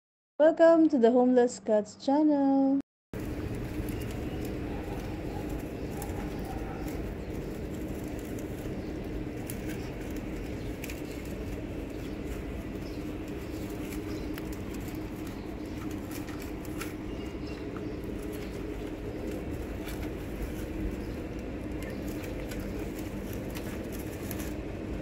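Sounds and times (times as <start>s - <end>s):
low street hum: 0.4s - 25.0s
cats chewing food: 3.2s - 25.0s.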